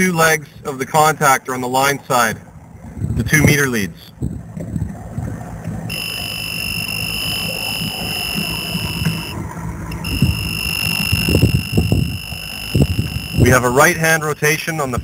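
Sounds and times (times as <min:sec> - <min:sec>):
low hum: 0:04.2 - 0:14.0
high-pitched meter beep: 0:05.9 - 0:09.4, 0:10.0 - 0:13.8.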